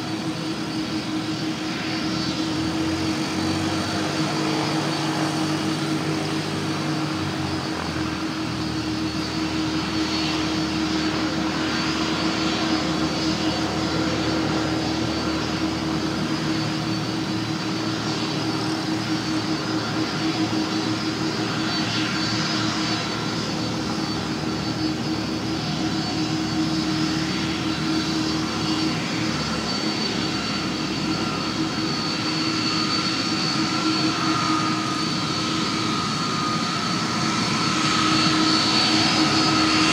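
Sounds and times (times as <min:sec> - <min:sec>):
jet engines running: 0:00.0 - 0:39.9.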